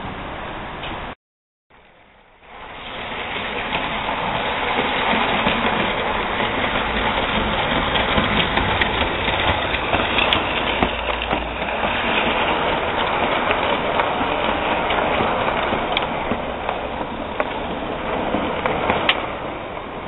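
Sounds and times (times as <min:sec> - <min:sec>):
low locomotive hum: 0:01.8 - 0:20.0
model train rattling whir: 0:02.3 - 0:19.5.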